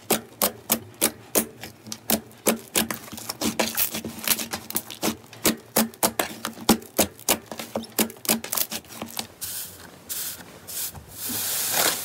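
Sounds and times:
slime hissing crackling rub: 0:08.6 - 0:12.0.

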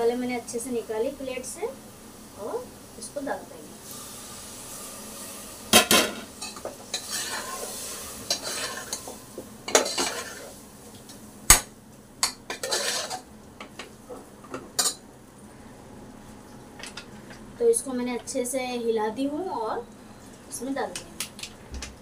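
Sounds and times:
food sizzling in oil: 0:00.0 - 0:15.1
metal spoon scraping pot: 0:06.4 - 0:09.1, 0:09.7 - 0:10.4, 0:12.5 - 0:13.2.

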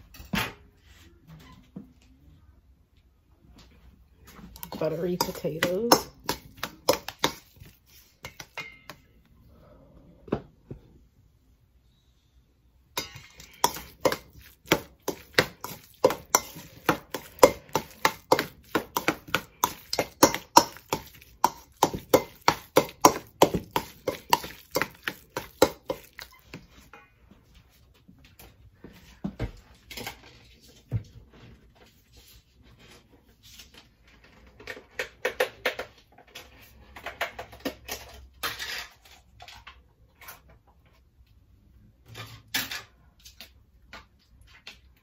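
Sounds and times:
utensil knocking on steel bowl: 0:04.6 - 0:09.0, 0:13.0 - 0:26.3.

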